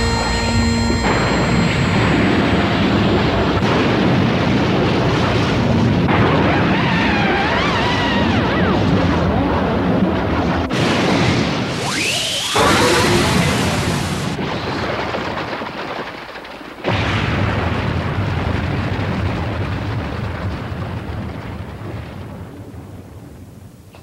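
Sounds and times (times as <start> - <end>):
wavering high tone: 0.0 - 3.8
cartoon explosion rumbling blast: 0.0 - 16.1, 16.8 - 23.5.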